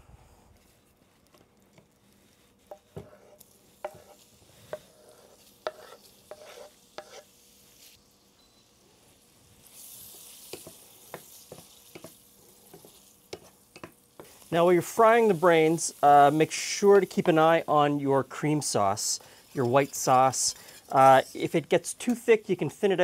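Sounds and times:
food sizzling in butter: 0:02.0 - 0:23.0
spatula scraping cutting board: 0:02.2 - 0:07.3, 0:10.0 - 0:14.4, 0:18.3 - 0:21.6
spatula knocking on pan: 0:10.5 - 0:14.3.

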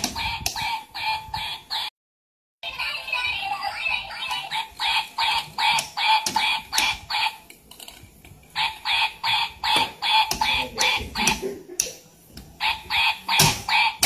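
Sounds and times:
toy electronic pulses: 0:03.5 - 0:07.4, 0:08.5 - 0:11.4.

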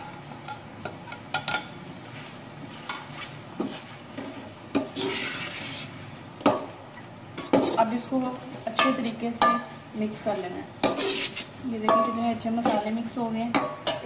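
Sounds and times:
metal spoon scraping a pot: 0:04.8 - 0:05.9, 0:10.8 - 0:12.9.

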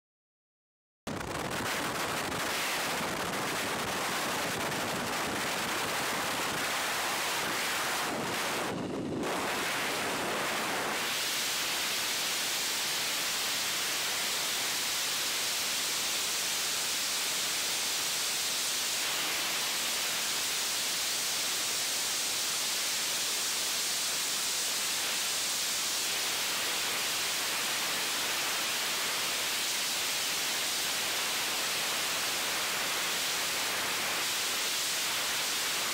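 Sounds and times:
rushing wind on helmet: 0:01.1 - 0:11.4.

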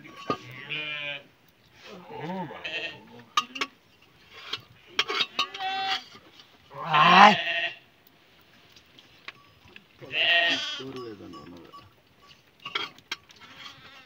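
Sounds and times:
sheep bleating: 0:00.4 - 0:01.3, 0:02.0 - 0:03.1, 0:05.3 - 0:06.1, 0:06.7 - 0:07.8, 0:10.0 - 0:11.0, 0:13.4 - 0:14.0.

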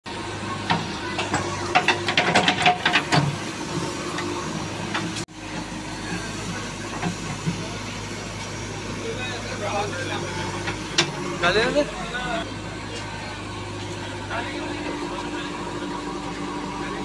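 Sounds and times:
diesel engine running: 0:00.1 - 0:17.0
sharp knocks and clanks: 0:00.6 - 0:03.4.

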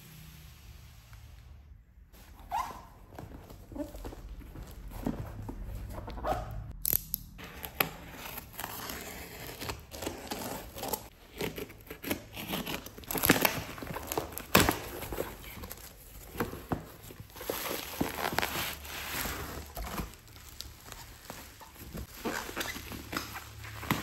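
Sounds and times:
box cutter slitting packing tape: 0:06.8 - 0:16.5
tape and cardboard tearing: 0:06.8 - 0:24.0.

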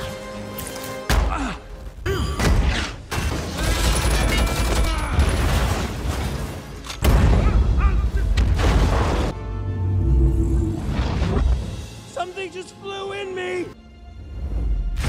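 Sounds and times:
film score music: 0:00.0 - 0:15.0
metal crashes and explosions: 0:02.4 - 0:09.4.

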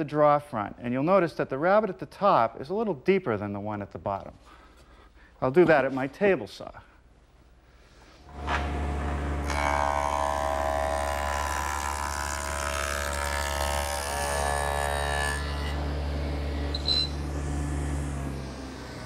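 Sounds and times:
saw cutting wood whine: 0:08.3 - 0:19.0
table saw motor hum: 0:08.3 - 0:19.0.

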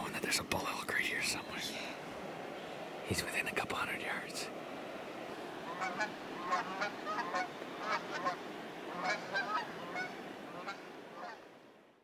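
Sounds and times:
geese honking: 0:05.7 - 0:11.4.

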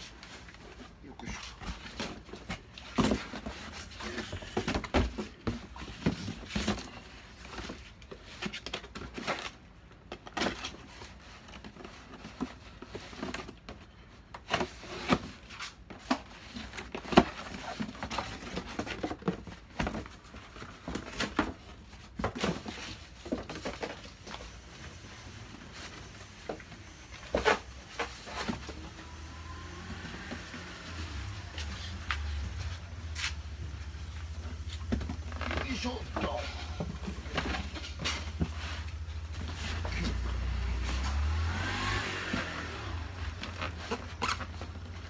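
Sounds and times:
cardboard boxes knocking and rustling: 0:00.0 - 0:45.0.

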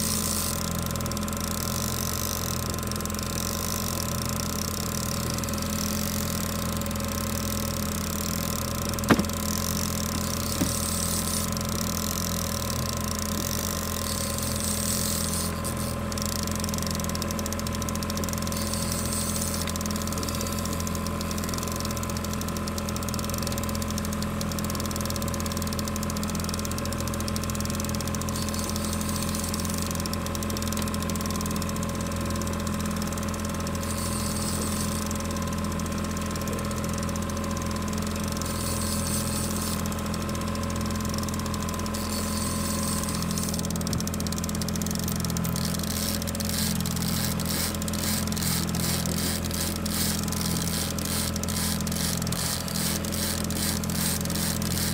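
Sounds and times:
outboard motor idling: 0:00.0 - 0:54.9
rapid ticking: 0:38.4 - 0:54.9.

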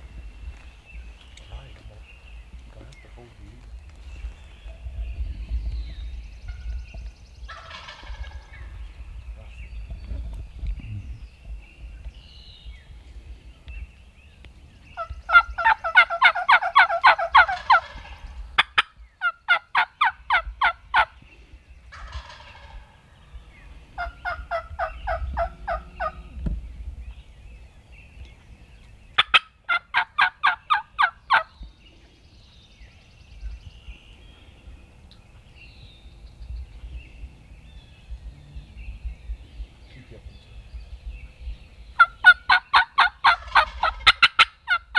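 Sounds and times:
wild turkeys calling: 0:06.4 - 0:08.7, 0:15.0 - 0:26.4, 0:28.3 - 0:32.1, 0:41.9 - 0:44.9.

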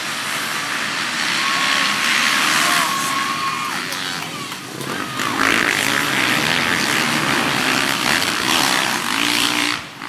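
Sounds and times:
motocross bikes revving: 0:00.0 - 0:10.0.

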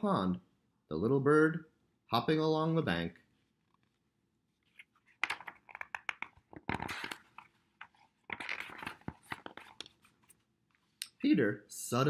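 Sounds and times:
paper pages rustling: 0:04.6 - 0:10.9.

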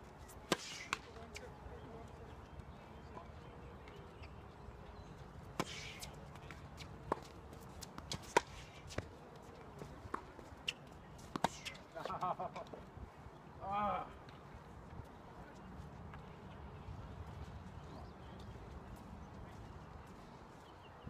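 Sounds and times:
racket hitting tennis ball: 0:00.5 - 0:01.2, 0:05.5 - 0:06.1, 0:06.8 - 0:09.0, 0:10.1 - 0:11.8.

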